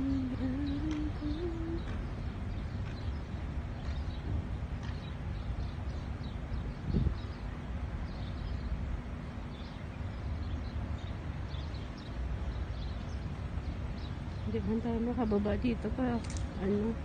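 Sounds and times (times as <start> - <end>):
small birds chirping: 0.0 - 17.0
wind rumbling on microphone: 0.0 - 17.0.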